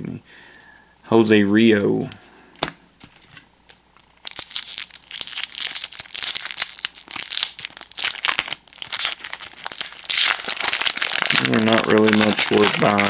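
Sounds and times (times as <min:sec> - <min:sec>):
wrapper crinkling and tearing: 0:03.1 - 0:13.0.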